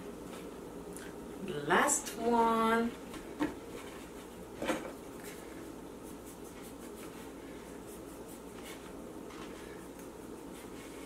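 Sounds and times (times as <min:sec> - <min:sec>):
hands shaping bread dough: 0:05.0 - 0:11.0.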